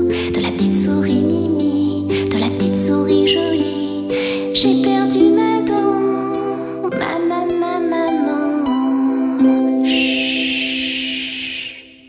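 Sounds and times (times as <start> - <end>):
voices singing long notes: 8.6 - 12.0.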